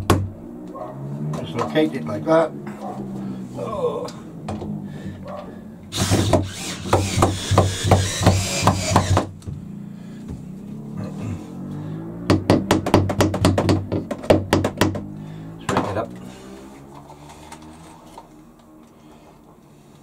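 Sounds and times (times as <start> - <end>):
cordless drill driving screw: 5.9 - 9.3.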